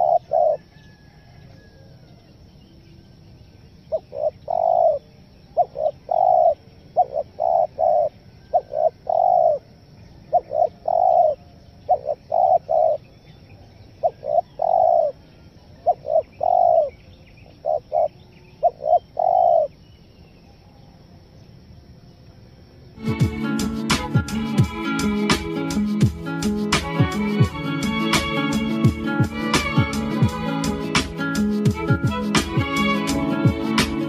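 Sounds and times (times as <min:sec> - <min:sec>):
dove cooing: 0:00.0 - 0:01.8, 0:03.9 - 0:13.1, 0:14.0 - 0:15.2, 0:15.8 - 0:17.0, 0:17.6 - 0:19.7.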